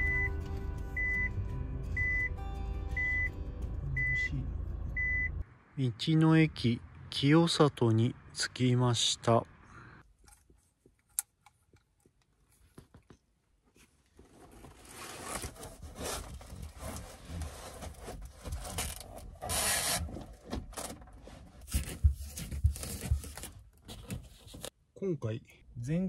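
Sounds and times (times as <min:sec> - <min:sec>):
rustling and scraping: 0:10.2 - 0:24.7.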